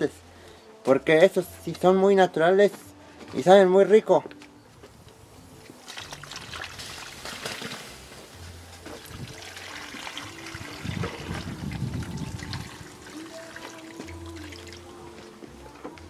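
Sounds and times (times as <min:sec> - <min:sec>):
water pouring into metal pot: 0:09.0 - 0:14.9.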